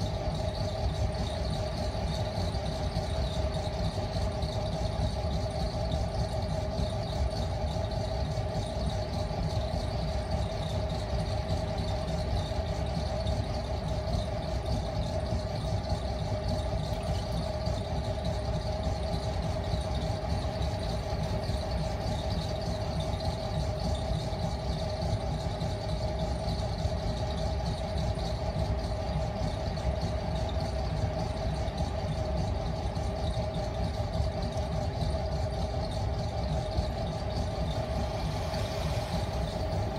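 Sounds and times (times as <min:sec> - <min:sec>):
potter's wheel motor whining: 0:31.2 - 0:39.9.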